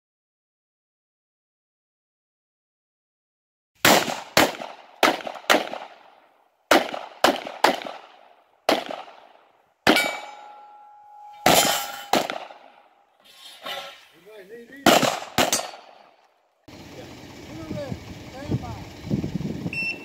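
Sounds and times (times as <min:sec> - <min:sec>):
pistol shots echoing: 0:03.8 - 0:13.0, 0:14.8 - 0:16.2
metal target ringing: 0:09.9 - 0:12.7, 0:14.8 - 0:16.1.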